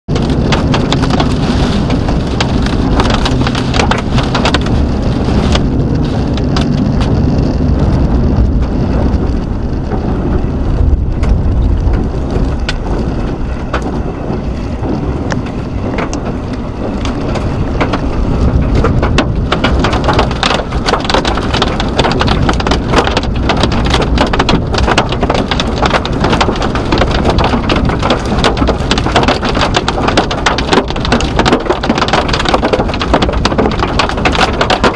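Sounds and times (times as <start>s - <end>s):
rain striking vehicle: 0.1s - 34.9s
wind and road noise rumble: 0.1s - 34.9s.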